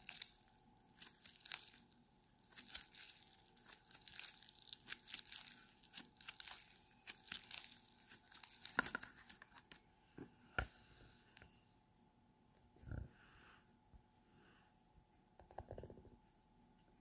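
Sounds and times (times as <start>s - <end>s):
slime crackling: 0.0s - 9.5s.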